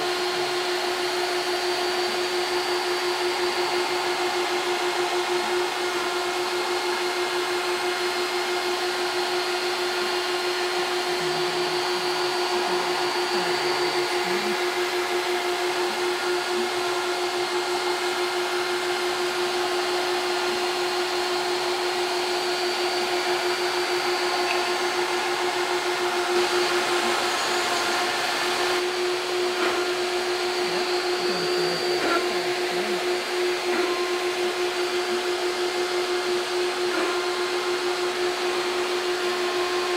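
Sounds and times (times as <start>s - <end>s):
router motor whining: 0.0s - 39.9s
vacuum hose hissing: 8.4s - 35.1s.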